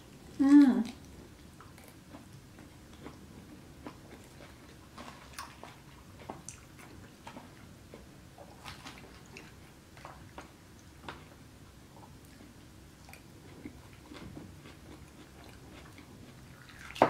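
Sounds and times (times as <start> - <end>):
person chewing: 12.0 - 17.0.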